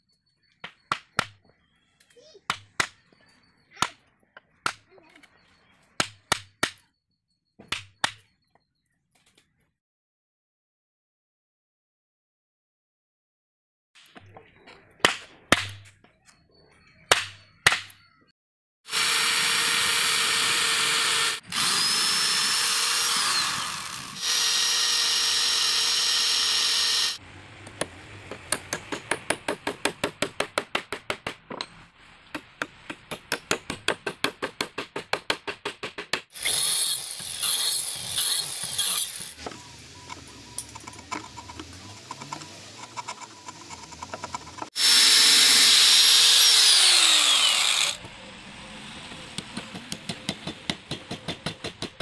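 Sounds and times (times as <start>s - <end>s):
angle grinder running: 18.9s - 27.2s, 36.3s - 40.6s, 41.4s - 48.0s.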